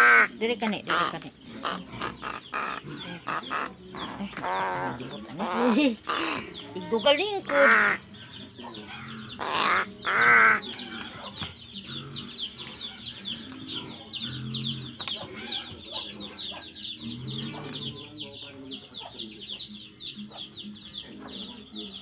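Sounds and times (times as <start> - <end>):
crow cawing: 0.0 - 0.3, 5.4 - 6.6, 7.4 - 8.0, 8.9 - 11.1
birds chirping: 0.0 - 22.0.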